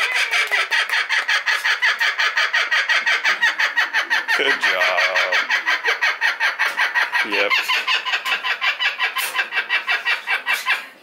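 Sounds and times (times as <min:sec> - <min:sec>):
kookaburra laughing call: 0:00.0 - 0:11.0.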